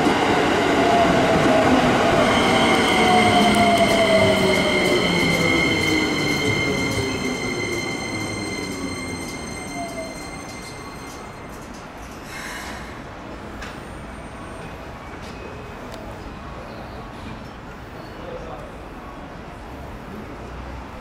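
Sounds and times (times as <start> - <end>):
high brake squeal: 2.2 - 13.1.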